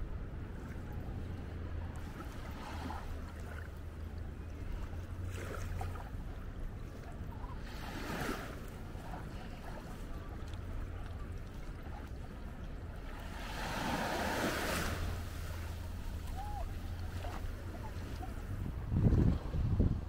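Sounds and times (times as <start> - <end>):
sea waves washing ashore: 0.0 - 20.0.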